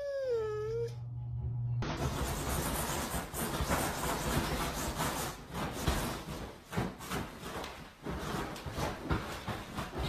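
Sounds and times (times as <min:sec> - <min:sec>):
bedding rustling: 0:04.3 - 0:10.0.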